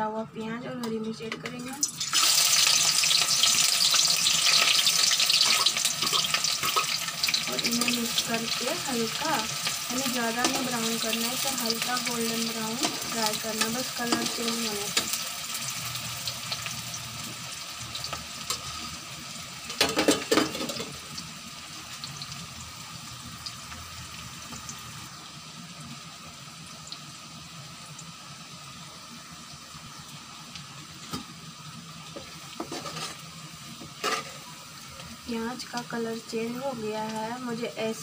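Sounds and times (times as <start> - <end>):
onions sizzling in oil: 1.2 - 38.0
metal ladle scraping pan: 32.6 - 33.2, 34.0 - 34.5.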